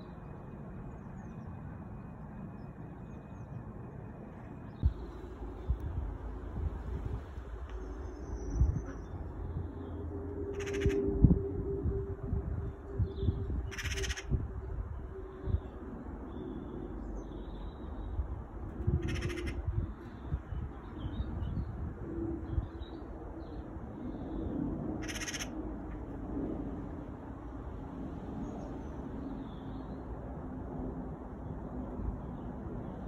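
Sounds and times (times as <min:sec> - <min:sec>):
distant jet airliner rumble: 0:00.0 - 0:33.0
bird calls: 0:10.5 - 0:11.0, 0:13.7 - 0:14.3, 0:19.0 - 0:20.0, 0:25.0 - 0:25.5.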